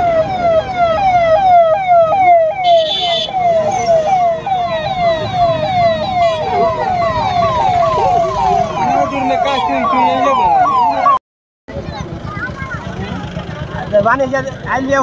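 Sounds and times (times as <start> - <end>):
police siren yelping: 0.0 - 11.2
crowd noise: 2.1 - 15.0.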